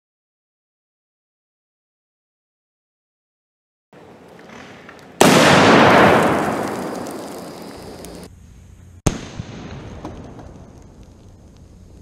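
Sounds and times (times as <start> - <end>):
loud explosion blast: 5.2 - 8.3.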